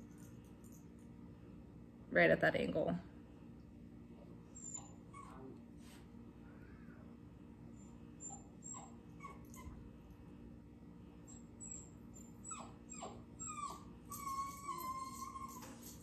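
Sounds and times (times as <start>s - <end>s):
dog whining: 4.5s - 5.6s, 7.8s - 9.9s, 11.3s - 16.0s.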